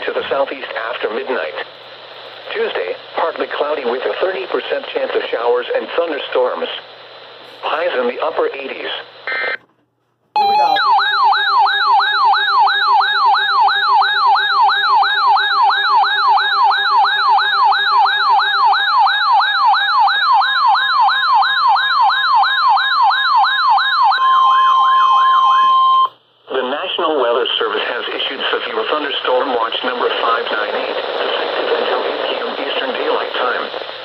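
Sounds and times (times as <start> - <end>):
steady alert tone: 10.4 - 19.1
electronic yelp siren: 10.4 - 26.1.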